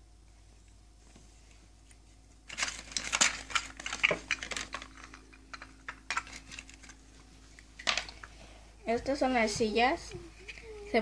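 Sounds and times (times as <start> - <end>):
plastic packaging crinkling: 2.4 - 8.3
plastic toy clicks and clatter: 2.5 - 7.0.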